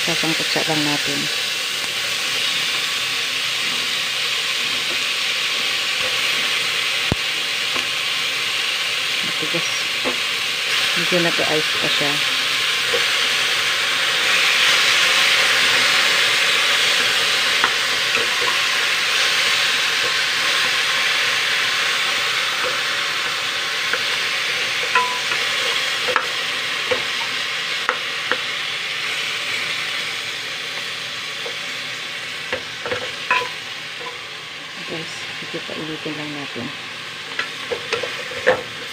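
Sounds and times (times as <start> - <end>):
meat sizzling in a pot: 0.0 - 38.9
wooden spatula knocking on pot: 24.9 - 25.5, 32.9 - 34.2.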